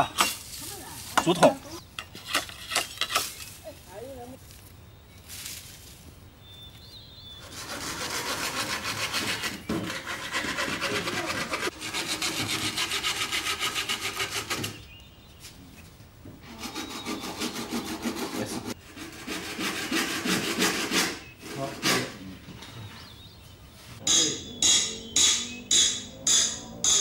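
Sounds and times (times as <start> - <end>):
hand saw cutting bamboo: 7.4 - 14.8, 16.4 - 22.2.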